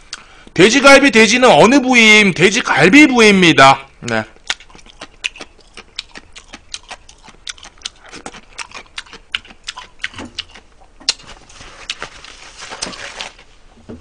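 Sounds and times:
chewing and lip-smacking: 4.1s - 12.1s
tissue rustling: 11.2s - 13.7s.

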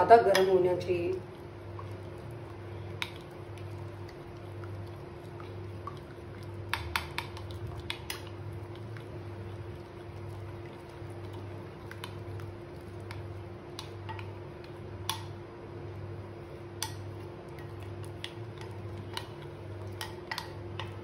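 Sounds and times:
steady low hum: 0.0s - 21.0s
spoon stirring in glass bowl: 1.2s - 15.3s, 16.8s - 21.0s.

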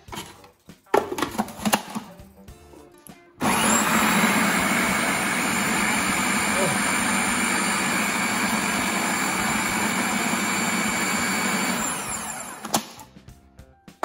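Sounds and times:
food processor motor running: 3.4s - 13.0s.

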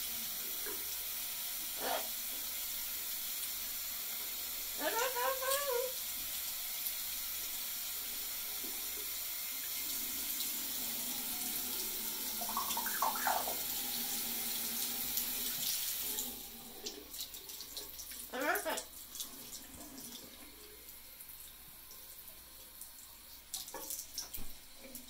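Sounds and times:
tap water running: 0.0s - 25.0s
parrot calls: 1.8s - 2.1s, 4.8s - 6.0s, 12.4s - 13.8s, 18.3s - 18.9s.

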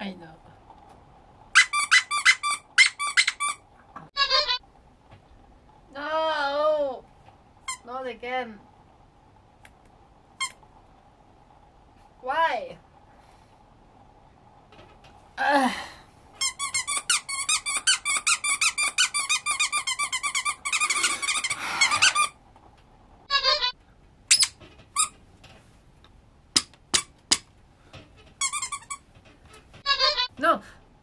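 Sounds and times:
dog toy squeaking: 1.6s - 3.6s, 16.4s - 22.3s, 23.3s - 25.1s, 28.4s - 29.0s, 29.8s - 30.3s.

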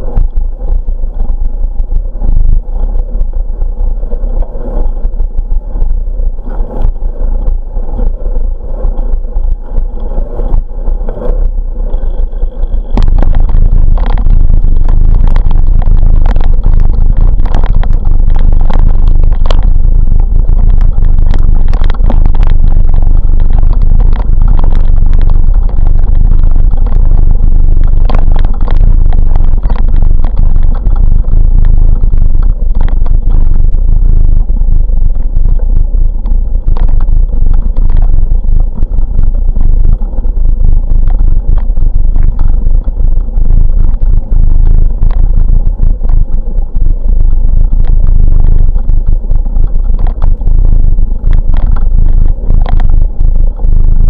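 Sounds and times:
bicycle rumbling on rough gravel: 0.0s - 54.0s
bicycle tyres and wind hum: 0.0s - 54.0s.

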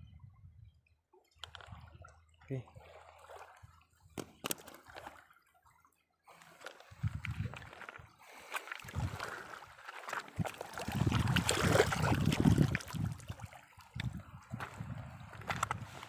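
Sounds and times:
wind rumbling on microphone: 0.0s - 0.9s, 6.9s - 8.1s, 8.8s - 9.5s, 10.3s - 16.0s
river water splashing: 1.4s - 16.0s.

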